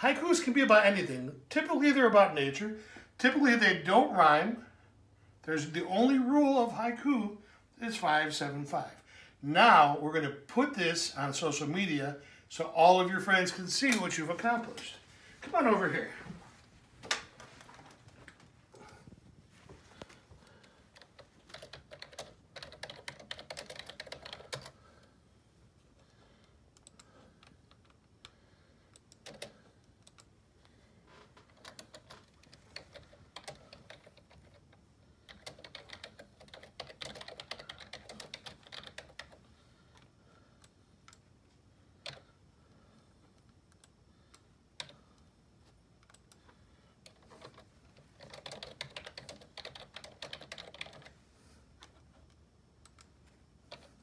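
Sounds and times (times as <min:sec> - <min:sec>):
keyboard typing: 0:20.0 - 0:25.1, 0:26.7 - 0:30.3, 0:31.4 - 0:41.2, 0:42.0 - 0:42.4, 0:43.4 - 0:45.3, 0:46.0 - 0:51.2, 0:51.8 - 0:54.0.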